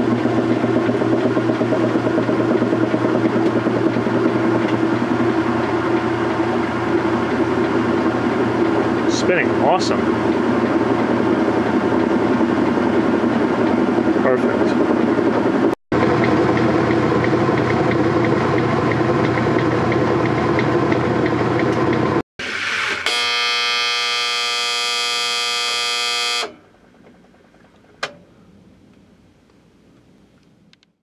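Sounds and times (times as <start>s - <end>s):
washing machine spinning: 0.0s - 22.9s, 26.6s - 28.2s
steady buzz: 23.0s - 26.6s
click: 28.0s - 28.2s, 30.4s - 30.9s.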